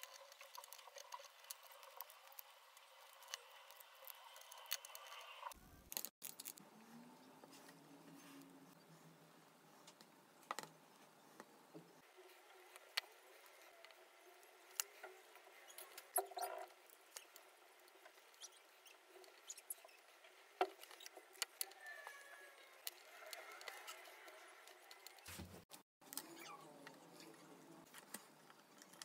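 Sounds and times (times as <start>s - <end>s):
squeaky rubbing of sticks: 12.2s - 25.5s.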